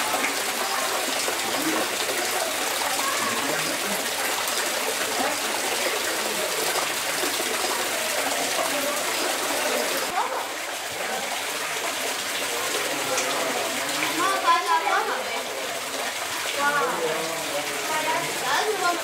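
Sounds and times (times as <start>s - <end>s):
people talking indistinctly: 0.0s - 19.0s
running water rushing: 0.0s - 19.0s.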